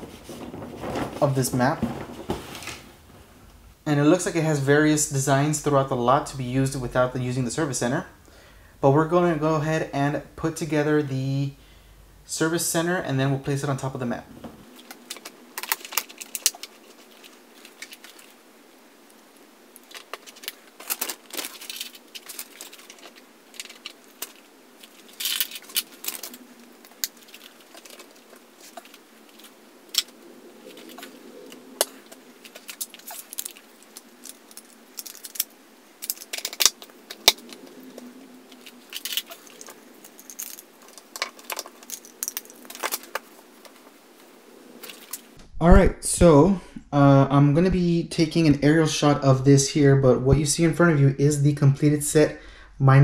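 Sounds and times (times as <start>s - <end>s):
plastic pieces clicking and rattling: 14.7s - 18.4s, 19.8s - 43.9s, 44.8s - 45.3s.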